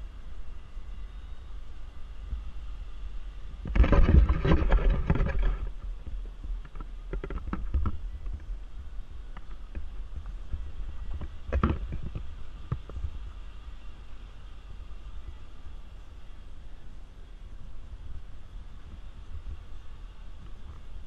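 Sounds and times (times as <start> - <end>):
low engine rumble: 0.0 - 21.0
tires crunching on rocks: 3.6 - 13.6.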